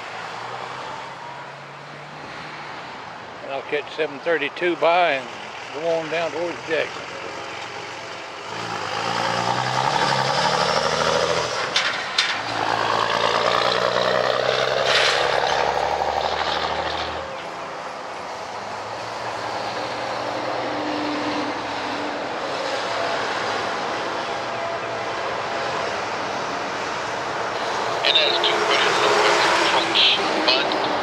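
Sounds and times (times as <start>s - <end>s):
heavy truck passing: 0.0s - 31.0s.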